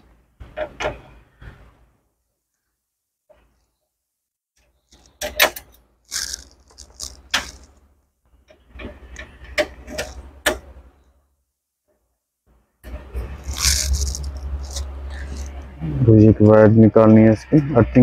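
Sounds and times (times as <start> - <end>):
screwdriver clicking and scraping metal: 9.1 - 10.2.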